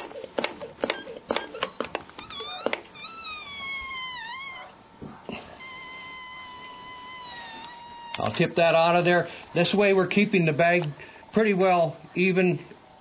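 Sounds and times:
hand pump trigger clicks: 0:00.0 - 0:02.9
long steady high tone: 0:02.3 - 0:08.3
high-pitched wavering squeal: 0:05.5 - 0:08.4.

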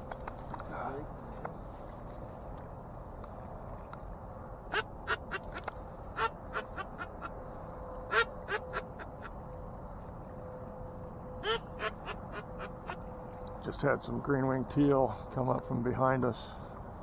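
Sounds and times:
duck quacking: 0:04.7 - 0:07.3, 0:08.1 - 0:09.3, 0:11.4 - 0:13.0.

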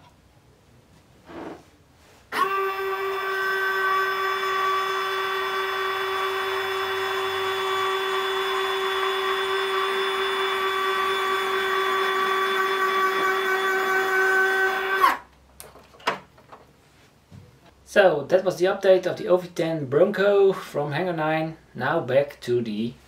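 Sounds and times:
small motor whining: 0:02.4 - 0:15.2.

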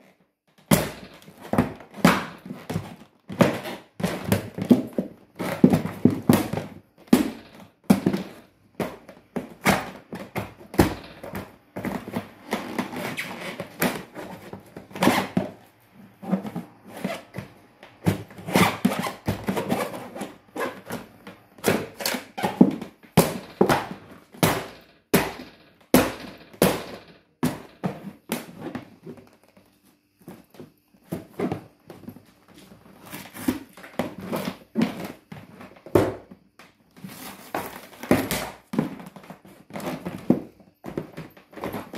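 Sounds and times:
suitcase shell creaking and crackling: 0:00.5 - 0:41.9
knocks and thuds on suitcase shell: 0:00.6 - 0:15.6, 0:16.3 - 0:29.3, 0:33.4 - 0:36.4.

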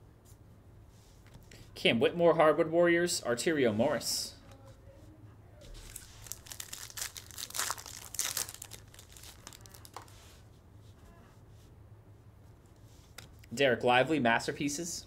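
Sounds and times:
foil wrapper crinkling and tearing: 0:05.8 - 0:10.1.

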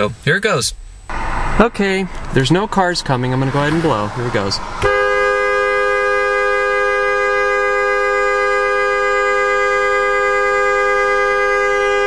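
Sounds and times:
car horn blast: 0:04.8 - 0:12.0.

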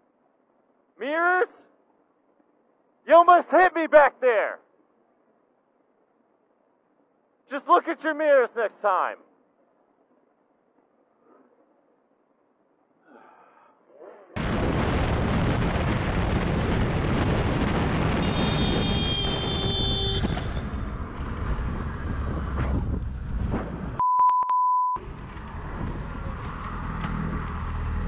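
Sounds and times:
wind noise on microphone: 0:18.2 - 0:24.0
steady beep tone: 0:24.0 - 0:25.0.

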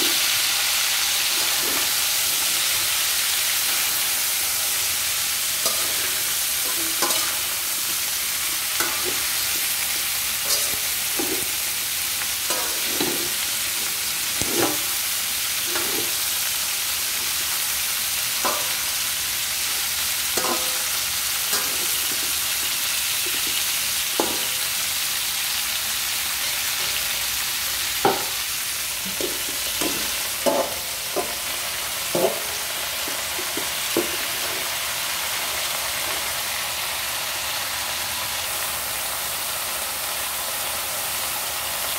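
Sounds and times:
food sizzling in a wok: 0:00.0 - 0:41.9
metal spatula scraping pan: 0:01.2 - 0:02.8, 0:05.6 - 0:11.8, 0:12.5 - 0:15.0, 0:15.6 - 0:16.3, 0:18.4 - 0:19.1, 0:20.4 - 0:24.6.

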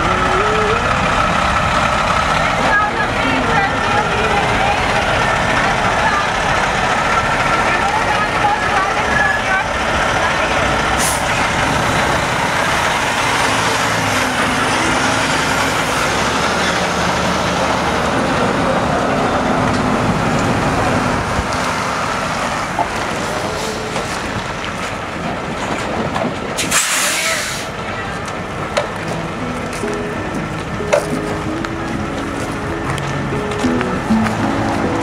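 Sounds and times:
diesel truck engine: 0:00.0 - 0:35.0
tyres rolling: 0:00.0 - 0:35.0
brief hiss: 0:26.6 - 0:27.7.

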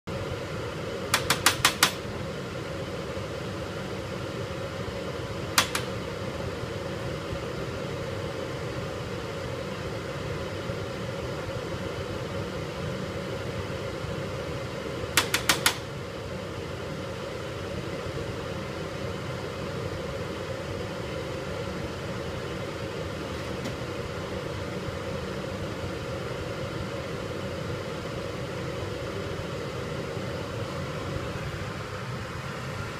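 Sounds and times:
ventilation fan hum: 0:00.0 - 0:32.9
sharp clicks: 0:05.6 - 0:05.9.

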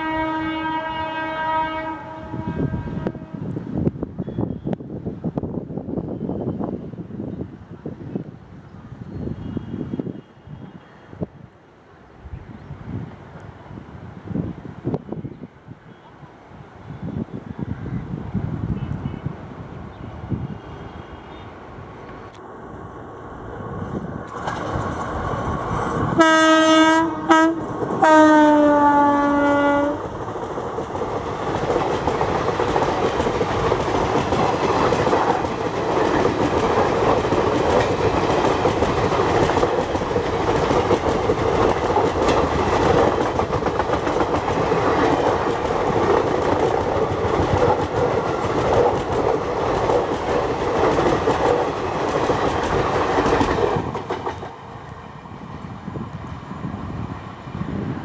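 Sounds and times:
locomotive horn blasts: 0:00.0 - 0:03.5, 0:26.2 - 0:30.0
train coaches rumbling past: 0:00.0 - 0:58.0
wheels clattering over rail joints: 0:24.2 - 0:26.2.

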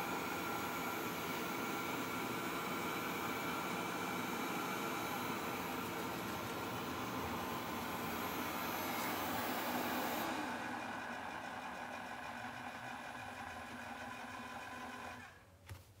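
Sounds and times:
robot vacuum whirring: 0:00.4 - 0:10.8.

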